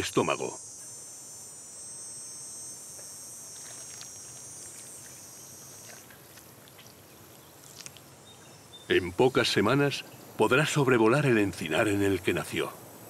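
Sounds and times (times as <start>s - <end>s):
insects trilling: 0.0s - 13.0s
faint ticks: 2.9s - 8.6s.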